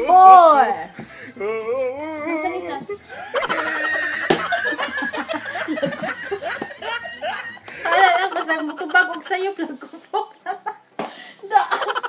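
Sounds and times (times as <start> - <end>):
women laughing: 3.1 - 12.0.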